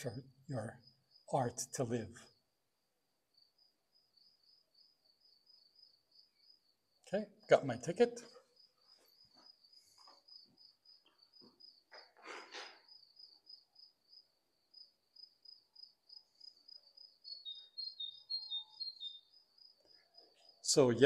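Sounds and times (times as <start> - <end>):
lower chirping: 12.8 - 21.0
high-pitched chirping: 17.2 - 19.4.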